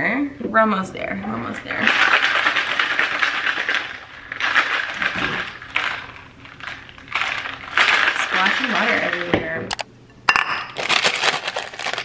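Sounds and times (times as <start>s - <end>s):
liquid sloshing in shaker bottle: 1.8s - 9.3s.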